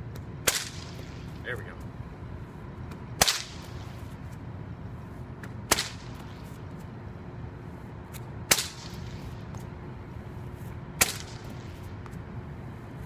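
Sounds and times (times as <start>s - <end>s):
whip cracking: 0.4s - 1.4s, 3.2s - 4.0s, 5.4s - 6.7s, 8.1s - 9.7s, 11.0s - 12.1s.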